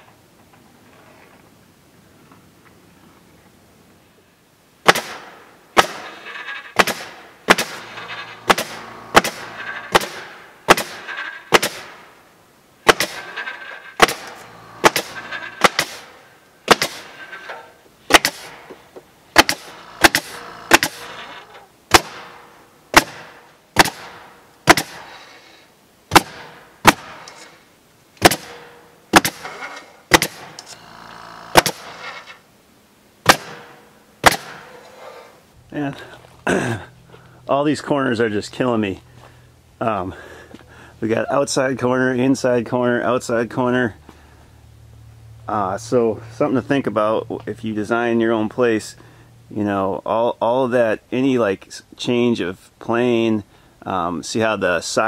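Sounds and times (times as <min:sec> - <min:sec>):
pneumatic stapler firing: 0:05.8 - 0:12.0, 0:12.9 - 0:18.6, 0:19.4 - 0:25.2, 0:28.2 - 0:32.3, 0:33.2 - 0:34.8.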